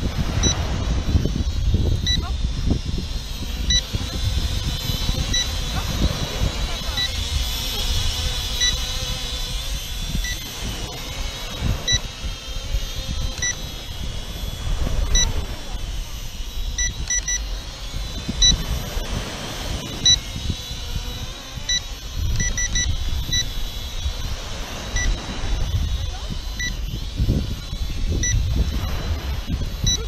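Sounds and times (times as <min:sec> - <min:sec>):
wind buffeting microphone: 0:00.0 - 0:30.0
short high electronic beeps: 0:05.3 - 0:05.6, 0:11.8 - 0:12.1, 0:16.8 - 0:17.4, 0:21.7 - 0:23.5, 0:26.6 - 0:26.8, 0:28.2 - 0:28.4.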